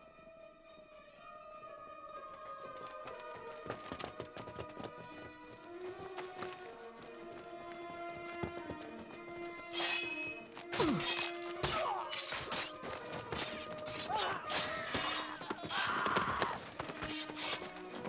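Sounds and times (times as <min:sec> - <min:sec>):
film music score: 0:00.0 - 0:18.0.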